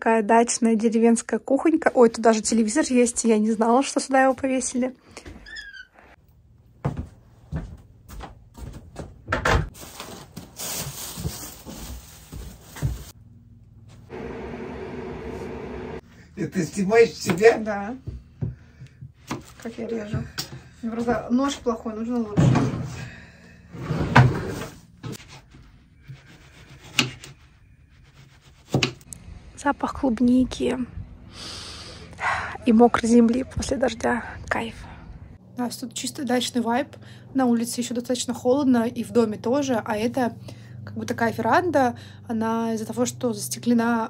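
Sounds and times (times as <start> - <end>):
knocks and thumps: 6.8 - 9.7
rustling noise: 9.7 - 13.2.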